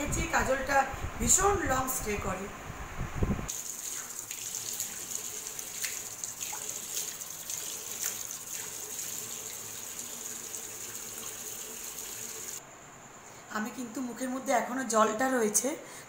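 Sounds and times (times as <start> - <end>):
water splashed onto face: 3.5 - 9.6
tap running into washbasin: 3.5 - 12.6.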